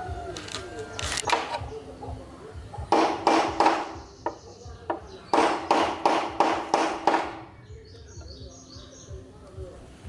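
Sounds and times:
hammer striking metal: 2.9 - 4.4, 5.3 - 7.4.

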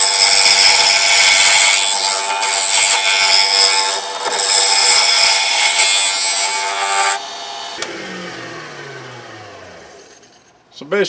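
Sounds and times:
lathe chisel shearing hiss: 0.0 - 7.9
lathe motor hum: 0.0 - 10.6
lathe motor winding down: 6.4 - 10.6.

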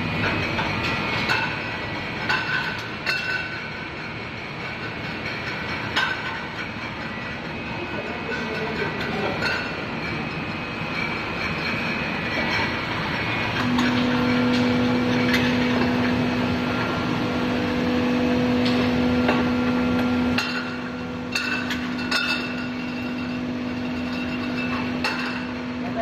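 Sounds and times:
glass bottles clinking: 2.3 - 3.6, 8.1 - 12.8, 20.2 - 26.0
machine motor hum: 12.0 - 26.0.

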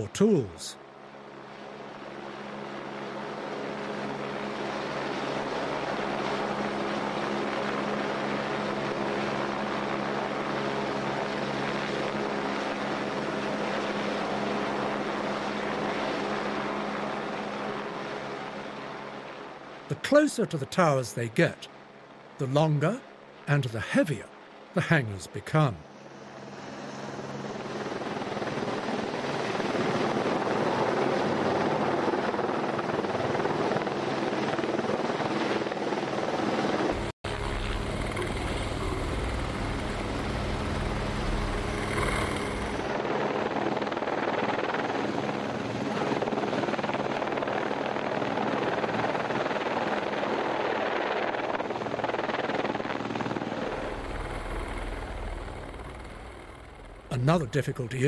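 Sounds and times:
helicopter hovering: 0.0 - 58.0.

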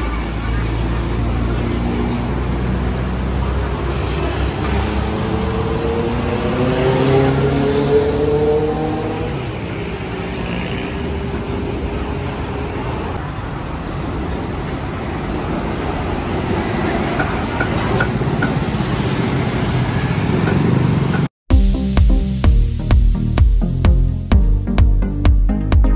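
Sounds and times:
city traffic rumble: 0.0 - 21.3
vehicle engine passing by: 0.6 - 12.8
electronic dance music: 21.5 - 25.9.

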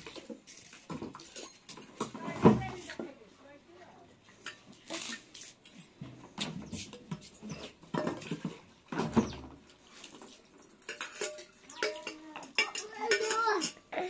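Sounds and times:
water sloshing in metal teapot: 0.0 - 2.3, 6.9 - 13.8
teapot clinking and scraping: 0.0 - 2.4, 6.7 - 13.9
small child babbling: 11.8 - 14.0.

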